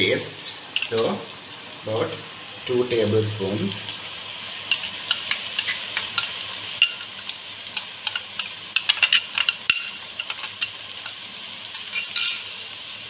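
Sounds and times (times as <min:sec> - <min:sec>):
onions sizzling in a pot: 0:00.0 - 0:13.0
metal spoon tapping and scraping: 0:08.0 - 0:11.2, 0:11.8 - 0:12.5.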